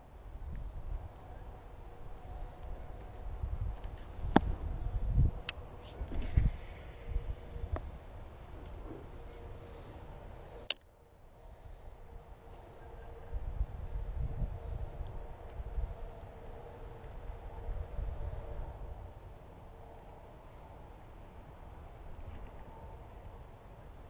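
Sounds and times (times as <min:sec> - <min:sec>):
insects chirring: 0:00.0 - 0:24.0
sharp click: 0:10.6 - 0:10.9.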